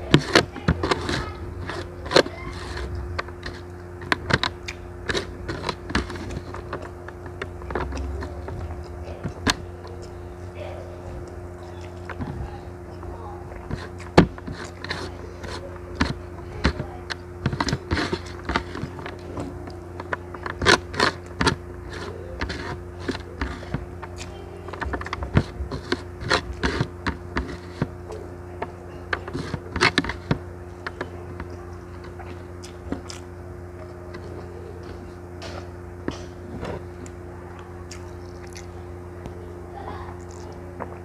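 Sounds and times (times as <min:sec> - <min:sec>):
fingers scraping rice on metal tray: 0:00.0 - 0:08.6, 0:13.7 - 0:28.1, 0:29.0 - 0:33.2
chewing: 0:00.0 - 0:41.0
steady low hum: 0:00.0 - 0:41.0.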